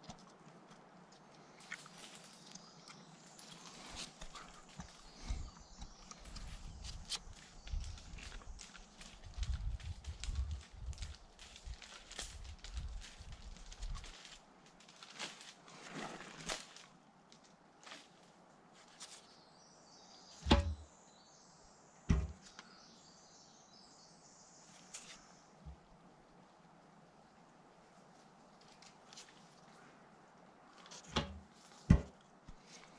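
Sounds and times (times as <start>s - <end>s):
dull knocks on stone: 20.4s - 20.8s, 22.1s - 22.4s, 31.2s - 32.1s.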